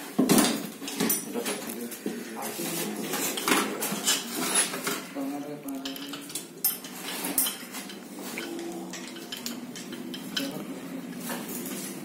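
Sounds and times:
metal tools clinking on metal: 5.8 - 10.6.

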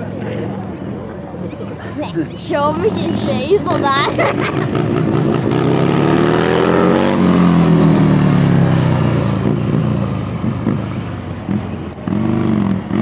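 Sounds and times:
motorcycle engine revving: 2.8 - 13.0.

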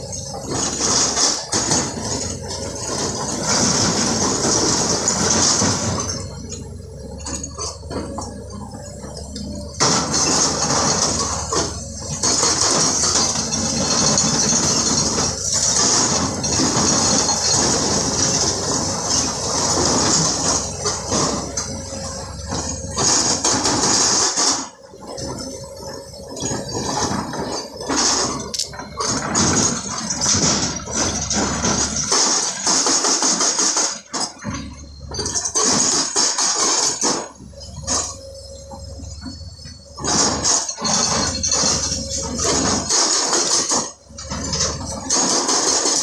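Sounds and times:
diesel engines running: 0.0 - 46.0
metallic clanking on rock: 0.0 - 46.0.

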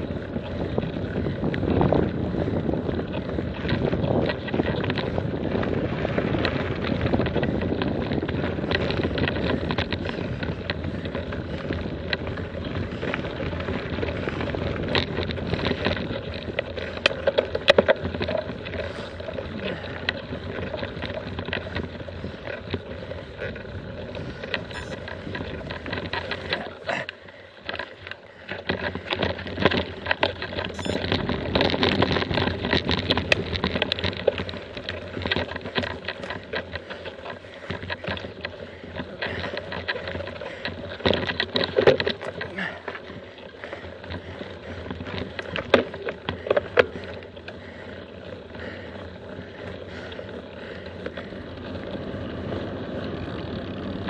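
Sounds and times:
wind noise on microphone: 0.0 - 27.1, 28.7 - 42.8
bike clicks and knocks: 0.0 - 54.0
bike rolling over gravel: 0.0 - 54.0.

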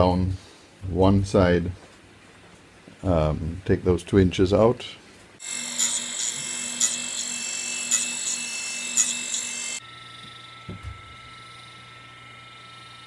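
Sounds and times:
quiet steady machine hum: 0.0 - 13.0
table saw cutting wood: 5.4 - 10.2.

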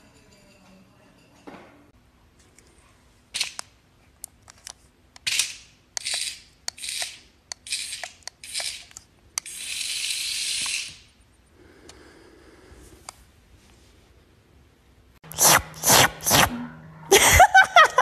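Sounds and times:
serval hissing and spitting: 15.3 - 16.5.

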